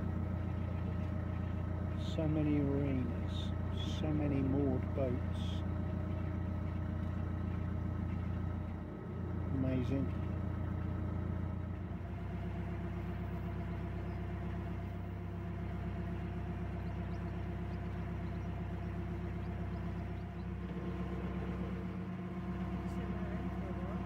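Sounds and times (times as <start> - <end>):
boat diesel engine humming: 0.0 - 24.0.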